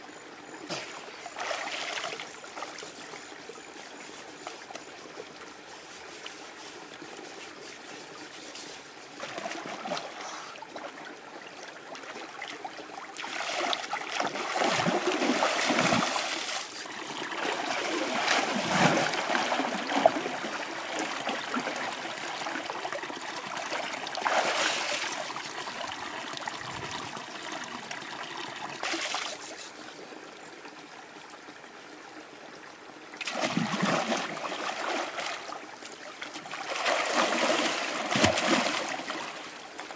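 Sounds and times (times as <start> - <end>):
stream trickling: 0.0 - 39.9
water splashing: 13.2 - 27.9, 33.2 - 39.8.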